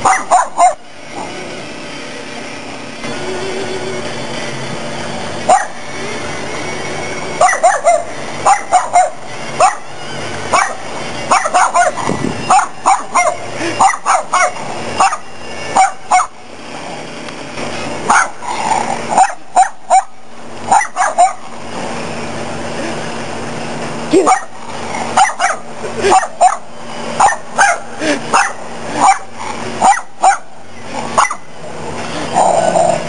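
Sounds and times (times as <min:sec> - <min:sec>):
puppy barking: 0:00.0 - 0:00.8, 0:05.5 - 0:05.8, 0:07.4 - 0:09.9, 0:10.5 - 0:16.4, 0:18.1 - 0:21.5, 0:24.2 - 0:30.6, 0:31.2 - 0:31.5.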